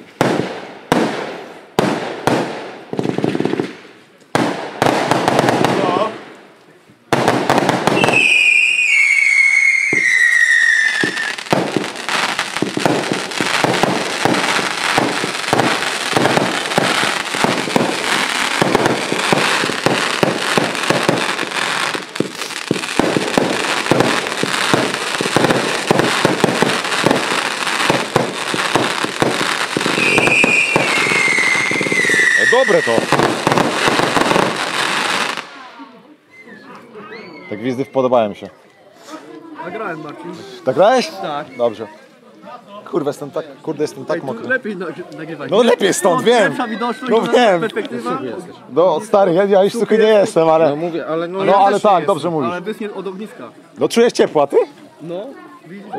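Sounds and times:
firework bangs and crackling: 0.0s - 35.9s
firework whistle falling in pitch: 8.0s - 11.4s, 30.0s - 33.0s.

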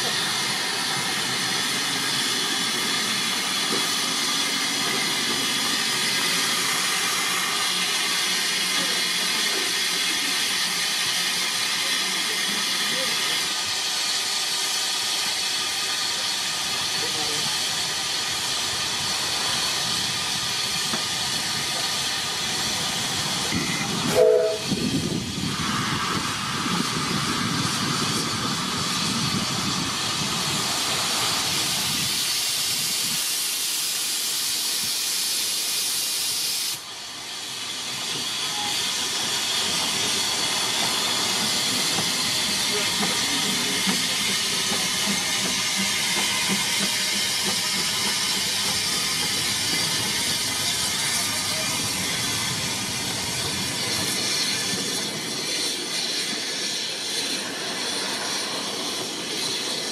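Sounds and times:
locomotive steam hissing: 0.0s - 59.9s
steam whistle toot: 23.5s - 24.8s.

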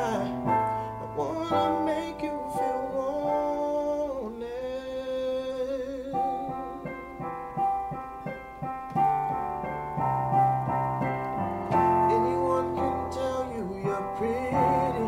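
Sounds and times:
man singing long note: 0.0s - 7.1s
electronic keyboard chords: 0.0s - 15.0s.

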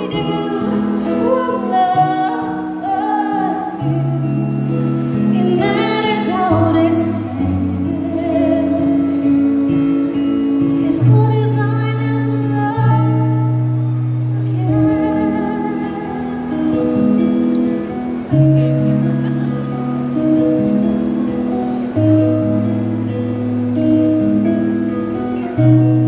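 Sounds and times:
woman singing into microphone: 0.0s - 17.5s.

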